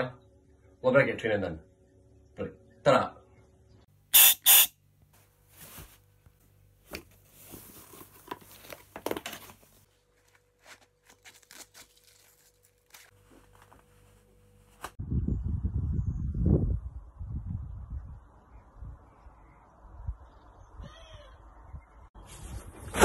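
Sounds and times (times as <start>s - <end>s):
short loud hissing bursts: 4.1s - 4.8s.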